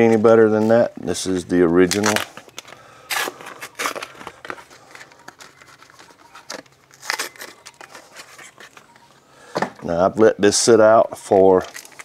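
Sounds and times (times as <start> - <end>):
foil wrapper crinkling: 0.7 - 8.9, 11.5 - 12.0.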